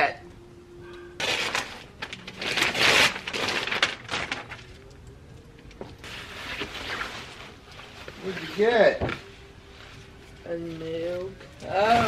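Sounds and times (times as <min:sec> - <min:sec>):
paper rustling and crinkling: 0:01.2 - 0:05.0, 0:05.8 - 0:11.0.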